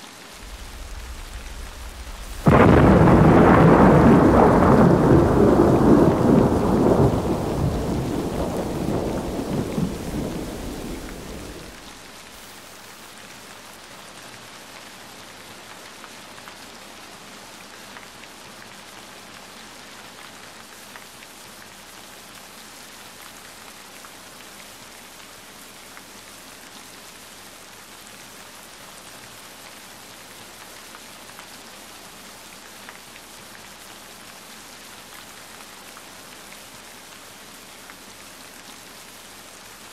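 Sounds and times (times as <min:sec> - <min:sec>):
steady rain: 0:00.0 - 0:39.9
thunder rumbling: 0:00.4 - 0:12.0.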